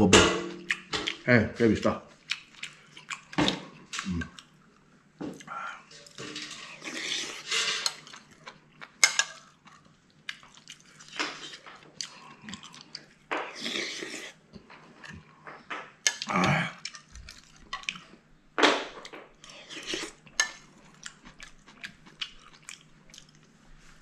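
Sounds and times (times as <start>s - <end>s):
chewing: 2.2s - 4.6s, 5.3s - 18.2s, 19.4s - 24.0s
slurping noodles: 6.6s - 8.0s, 13.5s - 14.4s.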